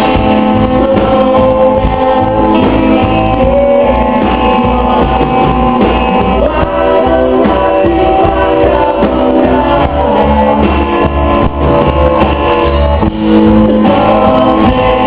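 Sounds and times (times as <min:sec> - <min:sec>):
bass guitar: 0:00.0 - 0:15.0
drums: 0:00.0 - 0:15.0
electric guitar: 0:00.0 - 0:15.0
person singing: 0:00.0 - 0:15.0.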